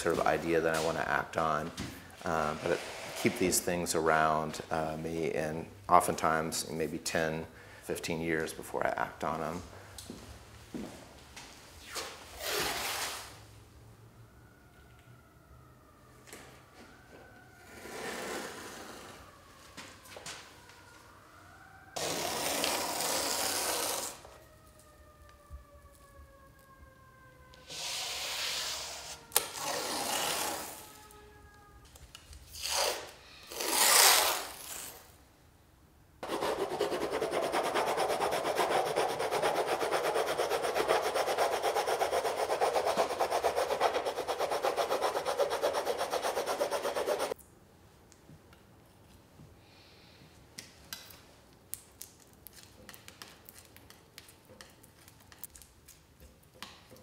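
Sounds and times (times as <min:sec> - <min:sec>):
scraping strokes on a painting: 0:02.2 - 0:03.6, 0:27.6 - 0:30.9, 0:36.2 - 0:47.4
rough rasping rubbing: 0:36.2 - 0:47.3.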